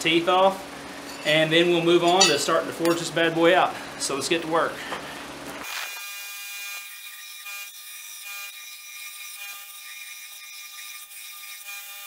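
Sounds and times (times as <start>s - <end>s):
belt grinder grinding steel: 5.6s - 12.0s.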